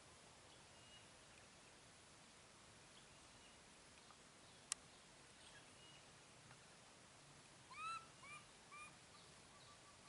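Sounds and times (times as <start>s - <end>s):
young monkey coo calls: 7.7s - 10.0s.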